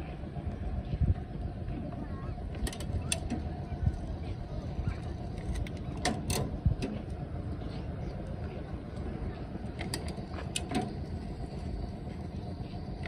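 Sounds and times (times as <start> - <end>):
road-marking applicator rolling: 0.0 - 13.0
metallic clicks and rattles: 2.5 - 3.4, 5.3 - 7.0.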